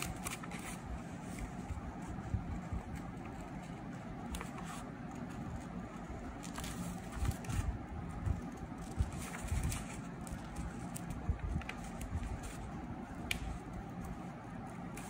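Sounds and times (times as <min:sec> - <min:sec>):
scissors cutting paper: 0:00.0 - 0:05.4
steady low rumble: 0:00.0 - 0:15.0.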